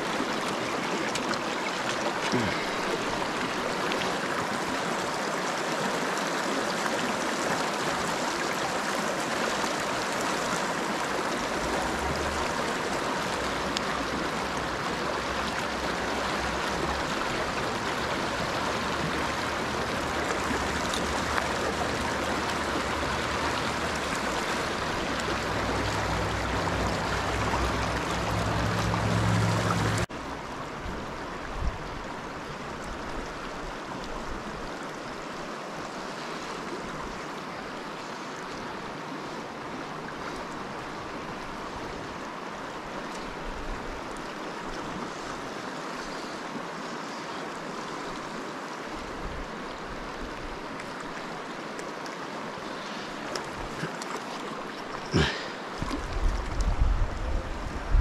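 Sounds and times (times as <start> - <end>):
river rushing over rocks: 0.0 - 58.0.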